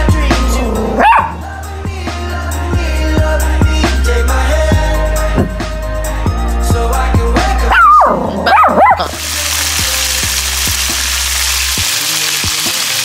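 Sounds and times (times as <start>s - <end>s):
background music: 0.0s - 13.0s
small dog yelping: 1.0s - 1.4s, 7.7s - 9.2s
eggs sizzling in a frying pan: 9.0s - 13.0s.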